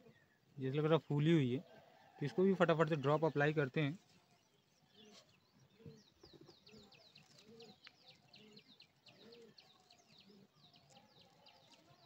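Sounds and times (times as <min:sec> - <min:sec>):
pigeons cooing: 0:05.0 - 0:11.0.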